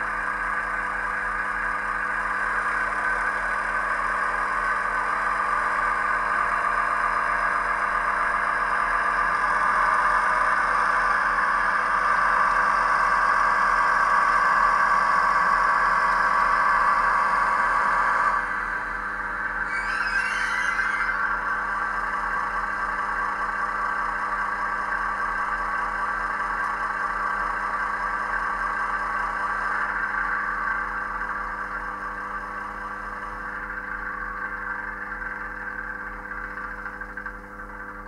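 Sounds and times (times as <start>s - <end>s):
diesel engine sound from small speaker: 0.0s - 38.0s.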